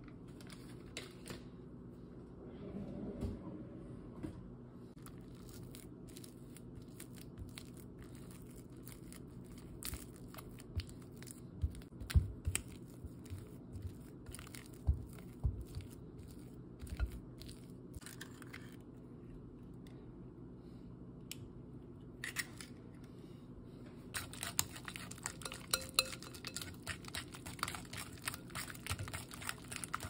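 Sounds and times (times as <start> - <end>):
steady low hum: 0.0 - 30.0
spatula squishing cream cheese: 5.0 - 18.0, 24.1 - 30.0.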